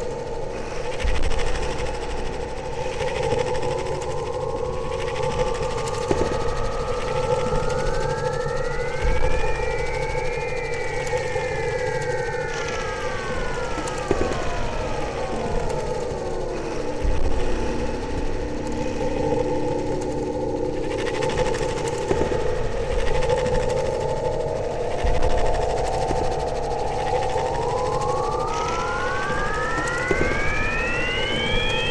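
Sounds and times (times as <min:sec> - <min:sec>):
synthesizer drone: 0:02.2 - 0:31.9
gliding synth tones: 0:23.8 - 0:31.9.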